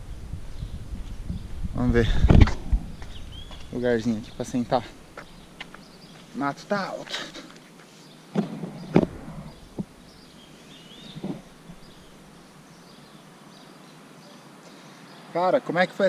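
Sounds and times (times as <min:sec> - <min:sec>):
outdoor background noise: 0:00.0 - 0:16.0
rustling in tall grass: 0:07.4 - 0:12.6
thumps: 0:08.4 - 0:10.0.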